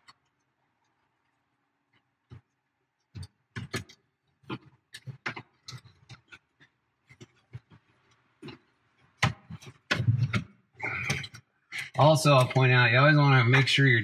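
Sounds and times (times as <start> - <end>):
clicks and knocks of handling: 2.3 - 12.6.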